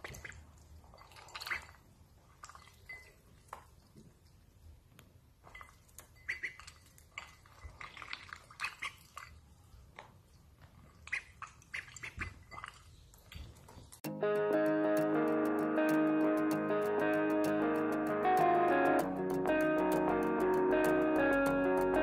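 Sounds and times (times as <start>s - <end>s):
ducklings dabbling in water: 0.0s - 4.6s, 5.5s - 14.0s
duckling peeps: 6.2s - 6.7s
guitar music: 14.1s - 22.0s.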